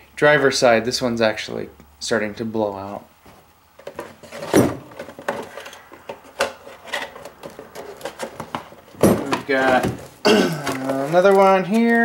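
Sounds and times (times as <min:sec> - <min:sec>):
cardboard packaging knocks and rustles: 0:03.8 - 0:12.0.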